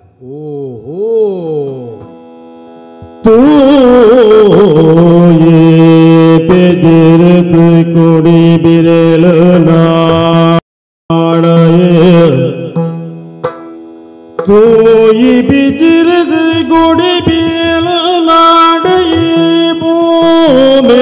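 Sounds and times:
person singing melodic line: 0.0s - 10.4s, 11.1s - 21.0s
hand drum strokes: 12.8s - 15.8s.

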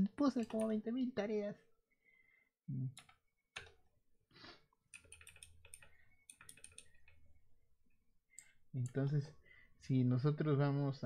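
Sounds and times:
typing on computer keyboard: 0.4s - 0.8s, 2.9s - 3.8s, 4.9s - 7.2s.

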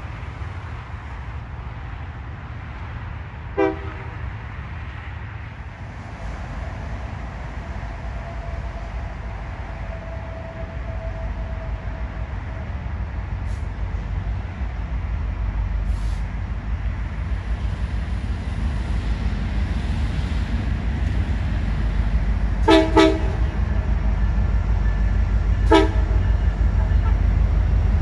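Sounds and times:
low train rumble: 0.0s - 28.0s
locomotive horn blasts: 3.6s - 4.1s, 22.6s - 23.9s, 25.6s - 27.3s.

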